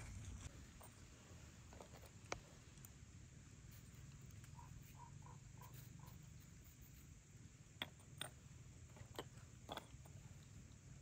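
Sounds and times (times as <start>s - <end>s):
faint low hum: 0.0s - 11.0s
ceramic jars clicking: 7.8s - 10.3s.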